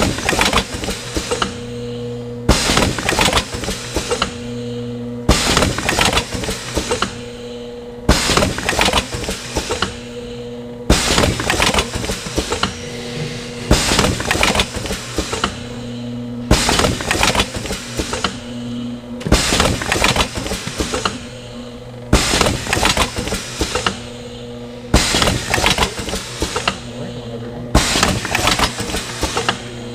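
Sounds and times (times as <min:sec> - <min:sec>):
machine mechanical clatter: 0:00.0 - 0:01.9, 0:02.5 - 0:04.6, 0:05.3 - 0:07.4, 0:08.1 - 0:10.2, 0:10.9 - 0:18.5, 0:19.2 - 0:24.2, 0:24.8 - 0:29.9
machine hum: 0:00.0 - 0:29.9.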